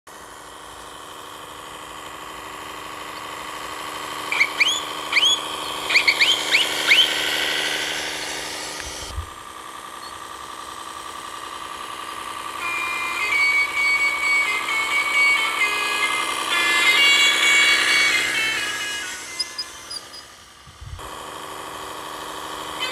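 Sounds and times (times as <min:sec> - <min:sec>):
simulated diesel tractor engine: 0:00.1 - 0:22.9
musical horn melody: 0:12.6 - 0:19.9
rising air-horn toots: 0:12.6 - 0:20.0.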